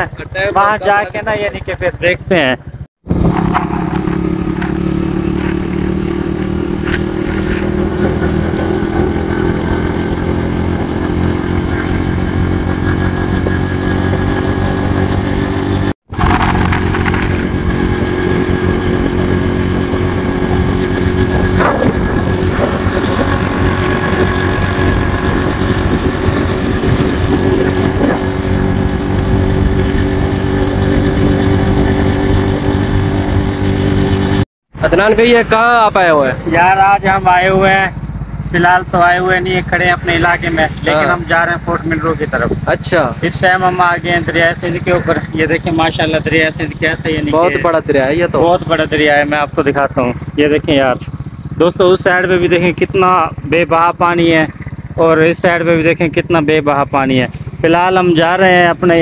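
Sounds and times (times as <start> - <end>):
motorcycle engine cruising: 0.0 - 59.0
road noise: 0.0 - 59.0
wind noise: 3.0 - 34.4, 42.3 - 42.7.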